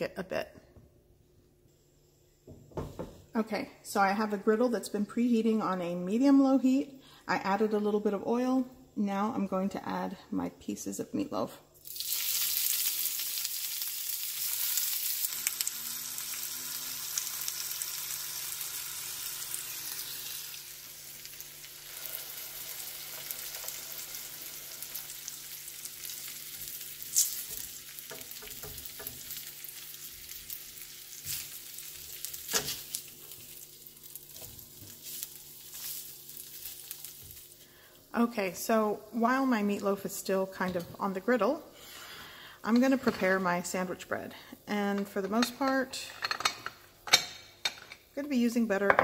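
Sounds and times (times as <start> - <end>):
meat sizzling in hot oil: 11.8 - 37.6
spatula clicking and scraping on pan: 26.6 - 29.4.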